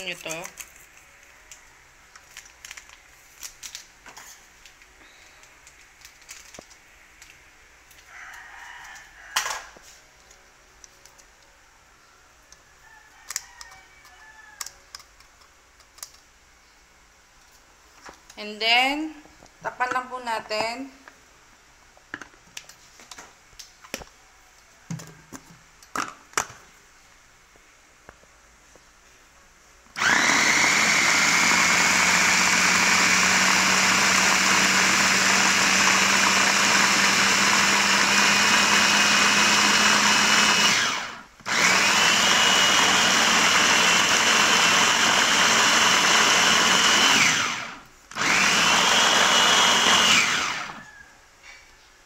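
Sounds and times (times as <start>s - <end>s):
paper sachets clicking and tapping: 2.2s - 3.9s.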